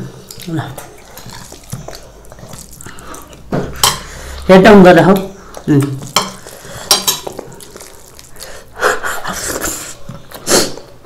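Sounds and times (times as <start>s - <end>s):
mouths smacking and chewing: 0.0s - 4.4s, 5.2s - 11.0s.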